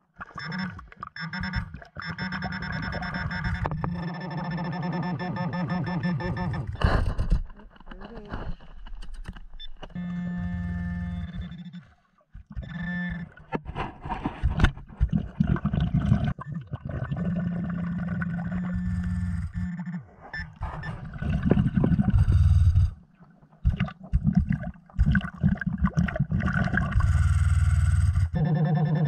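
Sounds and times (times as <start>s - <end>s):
underwater gurgling and bubbling: 10.5s - 29.0s
low hum: 17.1s - 25.3s, 26.4s - 29.0s.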